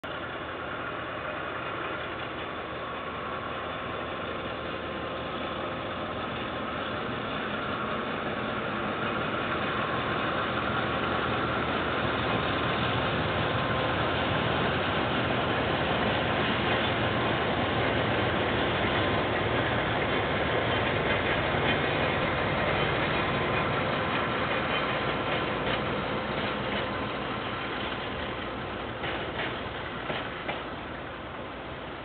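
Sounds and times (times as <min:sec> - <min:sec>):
diesel locomotive engine: 0:00.0 - 0:32.0.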